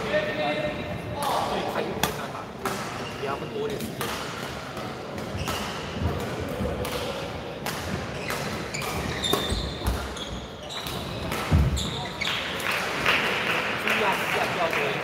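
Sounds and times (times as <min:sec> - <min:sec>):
shoe squeaks on court floor: 0:03.0 - 0:03.8, 0:08.2 - 0:12.5.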